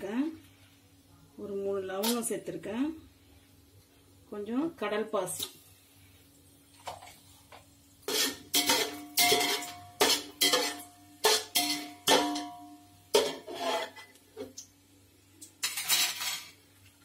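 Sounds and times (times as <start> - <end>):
metal ladle knocking on pot: 8.5 - 12.6.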